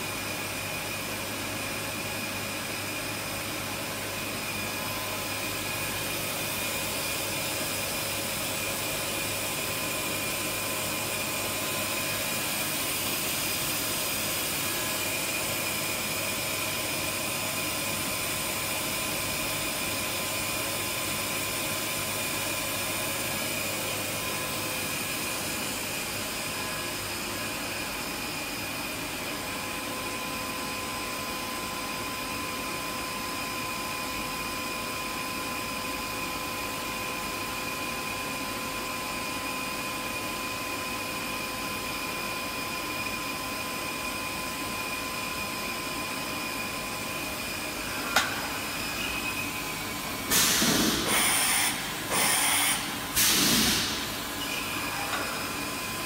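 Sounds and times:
machining centre whirring: 43.5 - 56.0.

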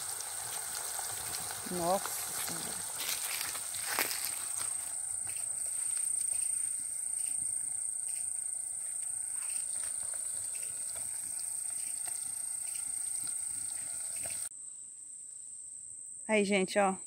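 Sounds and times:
fish frying in oil: 0.0 - 14.5
insects buzzing: 0.0 - 17.0.

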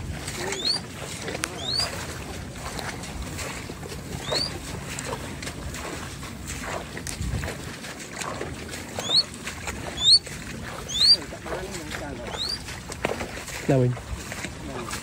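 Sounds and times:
footsteps through tall grass: 0.0 - 15.0
bird whistled call: 0.4 - 0.9, 1.5 - 2.0, 4.2 - 4.6, 9.0 - 9.3, 9.9 - 10.2, 10.8 - 11.2, 12.3 - 12.7.

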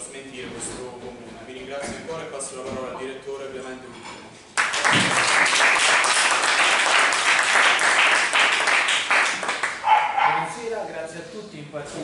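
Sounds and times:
crowd applause: 4.6 - 9.9.

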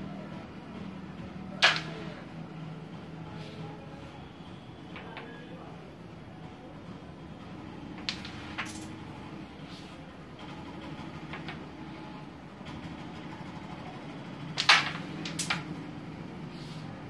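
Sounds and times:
sharp clack of carrom pieces: 1.5 - 2.3, 4.9 - 5.5, 7.9 - 9.0, 11.2 - 11.7, 14.5 - 15.8.

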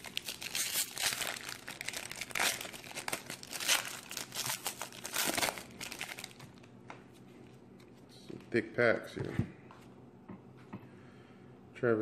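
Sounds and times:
foil wrapper tearing and crinkling: 0.0 - 6.7.

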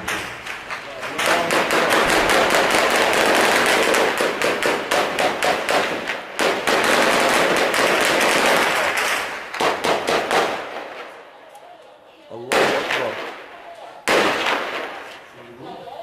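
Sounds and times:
automatic gunfire bursts: 1.2 - 10.7, 14.0 - 15.0.

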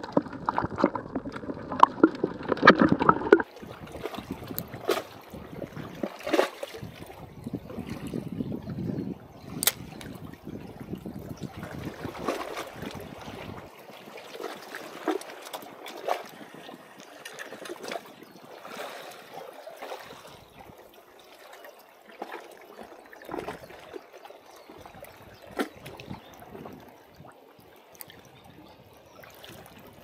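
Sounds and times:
seawater washing among blocks: 0.0 - 7.1.

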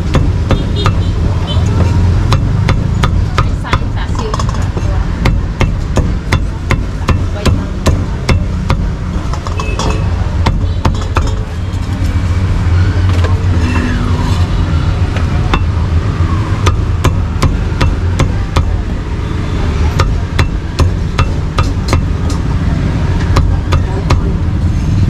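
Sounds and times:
cleaver chopping on a block: 0.0 - 1.1, 1.8 - 9.5, 10.4 - 11.4, 15.5 - 15.8, 16.6 - 18.8, 19.9 - 22.2, 23.2 - 24.4.

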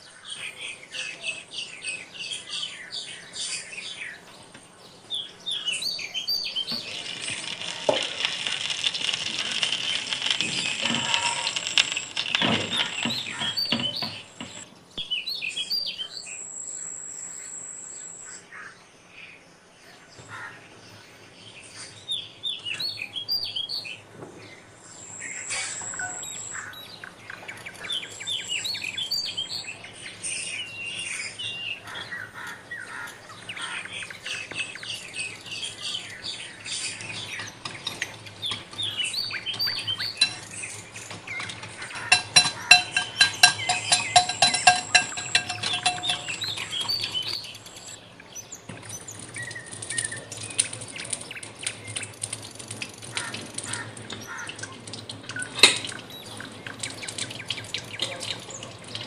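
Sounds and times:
small birds chirping: 0.0 - 59.0
ghee sizzling in a pan: 6.2 - 14.6
utensil clinking against glass bowl: 39.8 - 40.7, 41.4 - 47.9.

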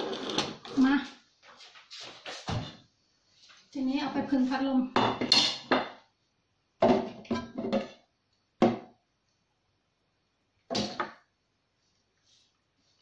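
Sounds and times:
metal kitchenware clinking: 5.0 - 6.0.

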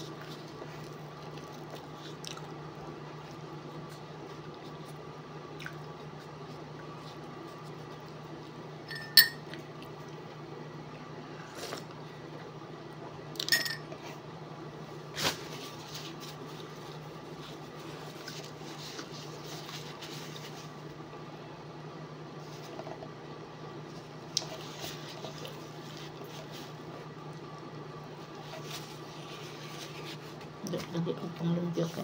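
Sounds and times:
steady low hum: 0.0 - 32.0
dishes clinking on a table: 8.9 - 9.4, 13.4 - 13.9.

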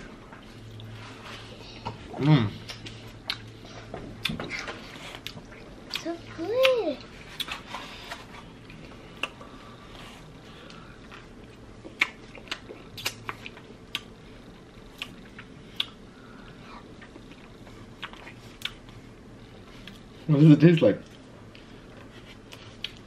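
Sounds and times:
chewing: 2.6 - 16.0, 16.8 - 20.2, 21.0 - 23.0
wet mouth clicks and smacks: 12.0 - 14.1, 14.9 - 16.0.

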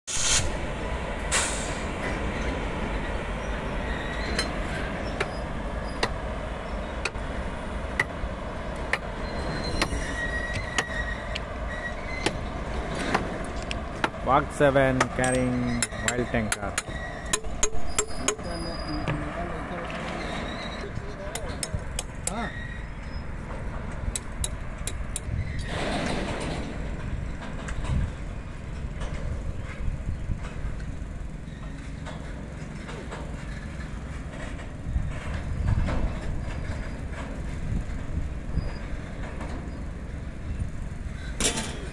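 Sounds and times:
brief rush of noise: 0.1 - 0.7, 1.3 - 1.9
freight train rumbling past: 0.1 - 41.9
wheels clicking over rail joints: 1.9 - 41.9.

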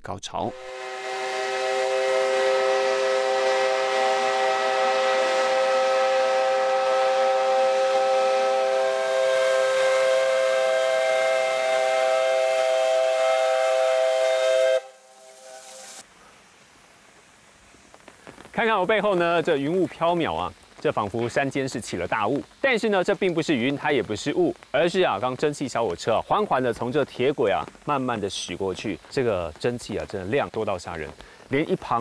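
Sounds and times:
steam locomotive whistle blast: 0.4 - 16.0
steam hissing: 0.5 - 32.0.

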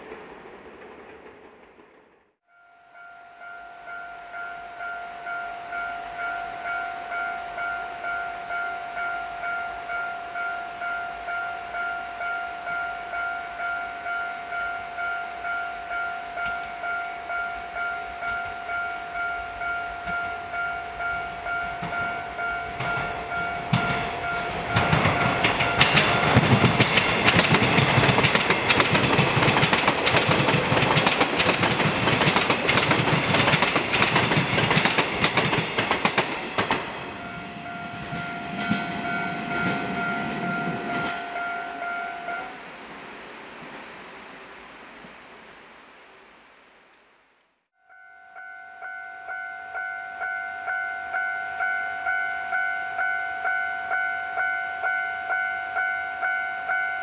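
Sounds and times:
level crossing bell ringing: 2.7 - 26.6, 36.9 - 42.6, 47.8 - 57.0
train wheels clattering: 21.8 - 41.6.

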